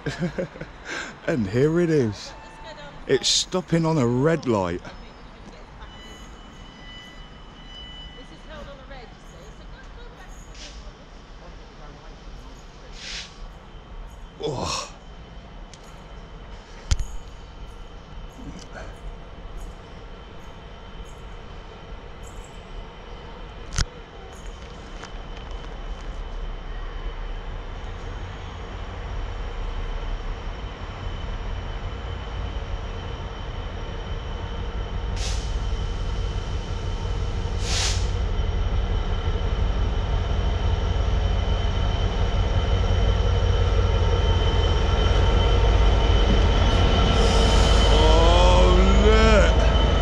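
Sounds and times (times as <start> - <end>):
diesel locomotive engine running: 0.0 - 50.0
brake squeal: 1.0 - 9.6, 10.2 - 11.0, 44.8 - 50.0
hissy air bursts: 13.0 - 13.5, 37.6 - 38.2.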